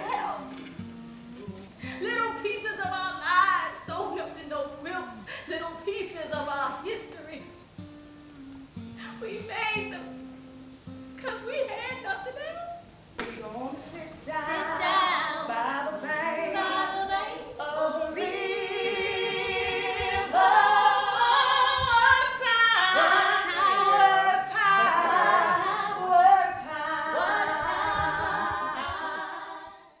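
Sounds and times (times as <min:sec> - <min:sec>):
voices singing in harmony: 0:00.0 - 0:00.8, 0:13.5 - 0:30.0.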